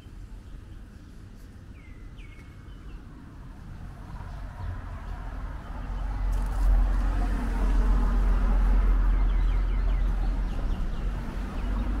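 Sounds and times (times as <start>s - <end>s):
vehicle passing by: 3.9s - 12.0s.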